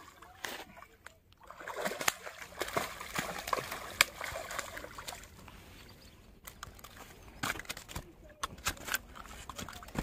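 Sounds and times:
fish splashing in water: 1.4 - 5.4.

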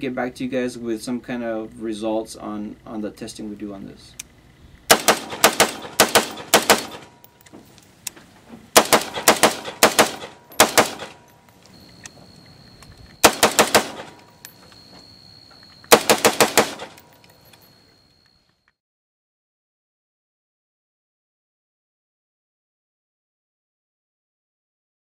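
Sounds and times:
rifle shots: 4.9 - 7.3, 8.8 - 11.2, 13.2 - 14.2, 15.9 - 17.0.

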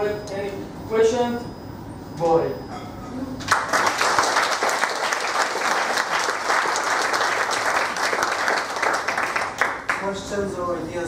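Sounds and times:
audience applauding: 3.5 - 10.1.

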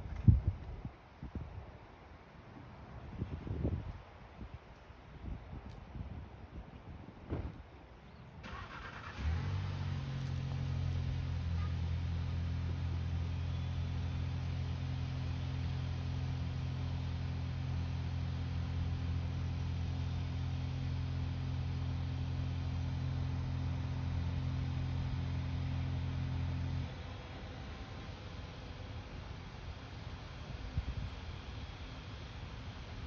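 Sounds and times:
car engine starting and idling: 8.4 - 33.0.

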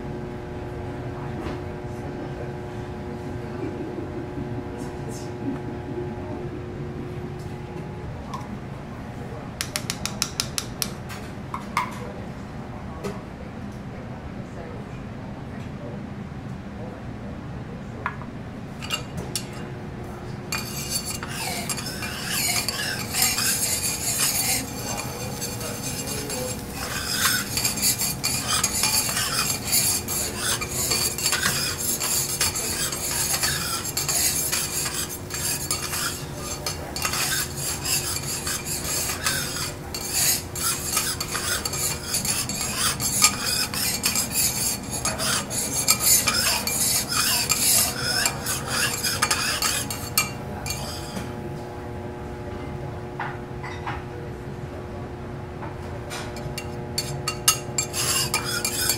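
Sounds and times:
metal spatulas scraping hot plate: 18.8 - 19.6, 20.5 - 51.3, 56.4 - 58.9
food sizzling: 20.6 - 51.2.

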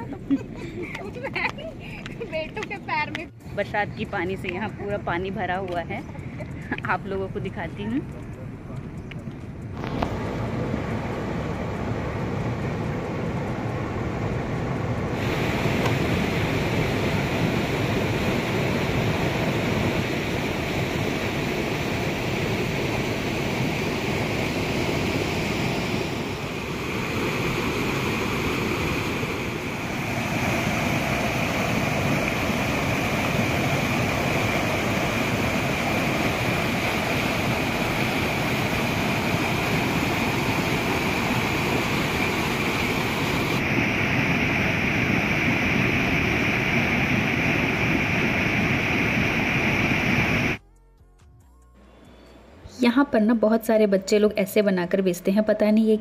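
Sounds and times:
river water rushing over a weir: 15.1 - 50.6.

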